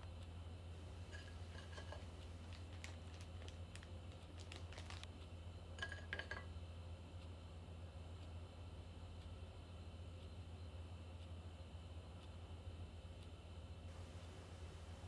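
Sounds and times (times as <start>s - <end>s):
steady low hum: 0.0s - 15.0s
crockery clattering: 1.0s - 2.1s
dishes clinking: 1.0s - 2.2s, 5.8s - 6.5s.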